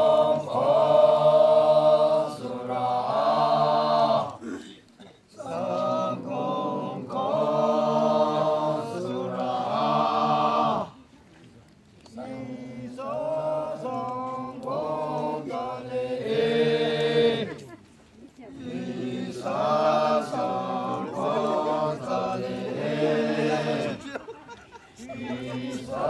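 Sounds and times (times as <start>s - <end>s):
men's choir singing a cappella: 0.0s - 4.5s, 5.4s - 10.9s, 12.2s - 17.6s, 18.6s - 24.2s, 25.0s - 26.0s.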